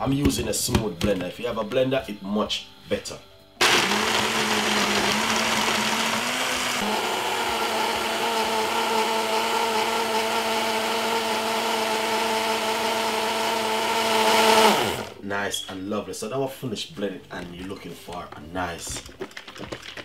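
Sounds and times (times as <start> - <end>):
blender running: 3.6 - 15.2.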